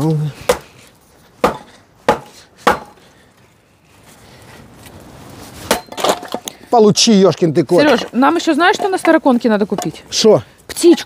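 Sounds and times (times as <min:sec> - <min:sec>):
axe chopping firewood: 0:00.4 - 0:00.8, 0:01.4 - 0:03.1, 0:05.6 - 0:06.6.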